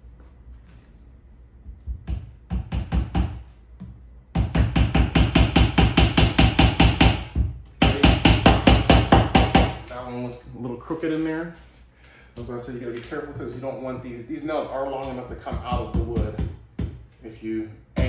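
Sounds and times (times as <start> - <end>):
hammer tapping nails: 1.8 - 9.8.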